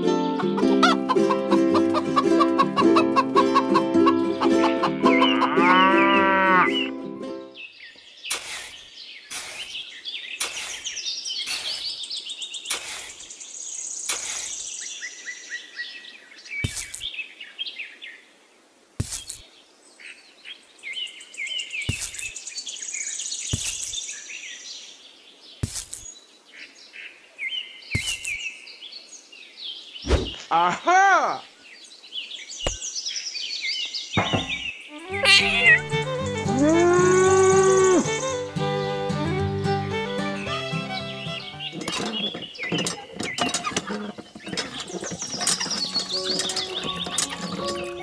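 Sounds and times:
birds chirping: 0:00.6 - 0:18.2, 0:19.0 - 0:48.0
cow mooing: 0:05.3 - 0:06.9, 0:36.5 - 0:38.1.

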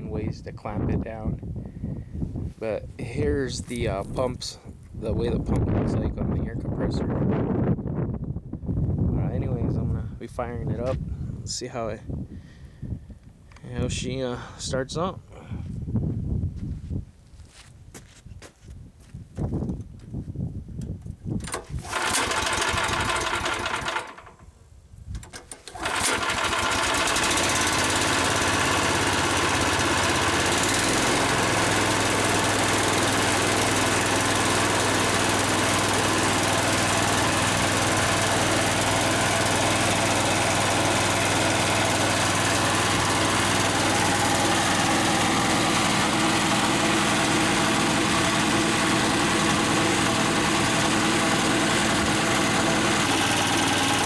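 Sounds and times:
gas engine starting and running: 0:21.4 - 0:54.0.

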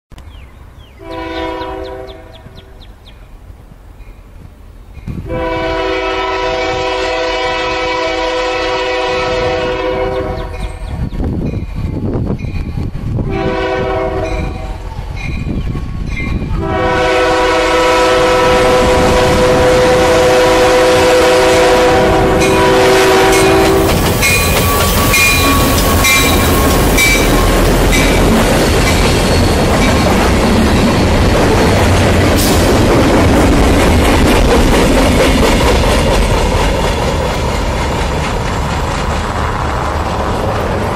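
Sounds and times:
locomotives rumbling past: 0:00.4 - 0:40.9
locomotive air horn: 0:01.0 - 0:02.4, 0:05.3 - 0:10.7, 0:13.2 - 0:14.9, 0:16.5 - 0:28.2
wheels clicking over rail joints: 0:23.3 - 0:40.9.

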